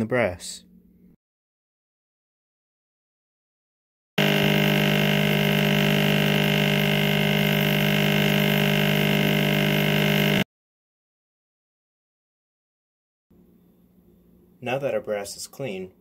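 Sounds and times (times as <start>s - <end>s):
vibratory tumbler humming: 4.2s - 10.4s.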